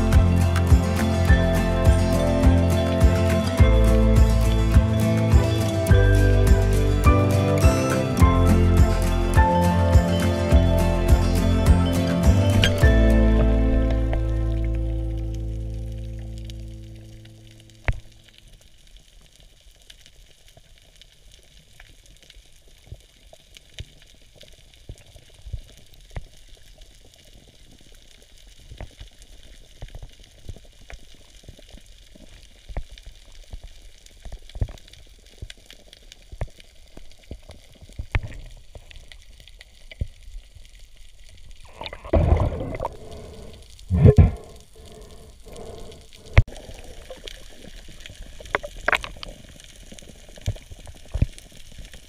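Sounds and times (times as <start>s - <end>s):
faint crackling hiss: 0.0s - 52.0s
underwater clicks and knocks: 48.4s - 49.4s.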